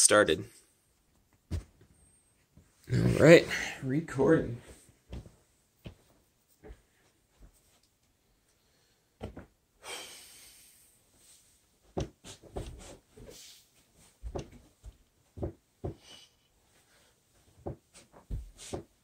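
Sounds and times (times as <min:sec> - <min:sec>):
thuds on carpeted floor: 0:01.5 - 0:01.8, 0:09.2 - 0:09.5, 0:14.2 - 0:16.0
person breathing: 0:08.2 - 0:09.2, 0:09.8 - 0:11.6, 0:15.9 - 0:17.3.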